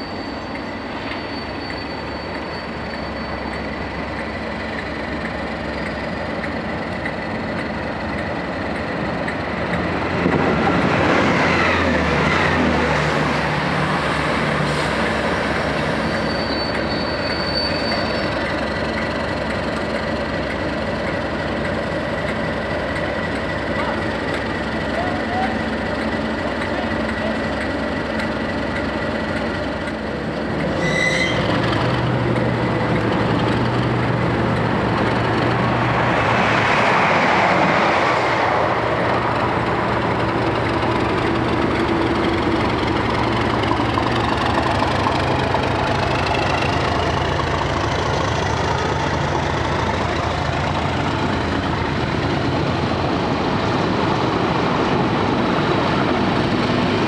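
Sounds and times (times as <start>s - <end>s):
diesel locomotive engine running: 0.0s - 57.0s
rushing noise: 30.3s - 57.0s.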